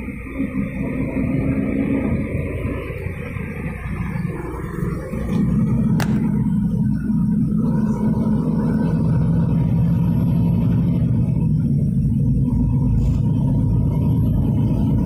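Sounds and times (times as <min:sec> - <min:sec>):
car road noise rumble: 0:00.0 - 0:15.0.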